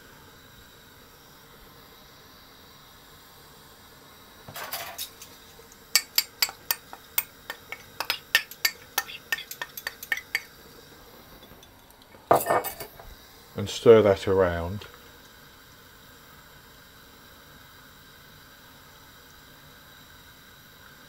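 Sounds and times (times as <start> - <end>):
metal spoon clinking on pot: 4.6 - 10.5.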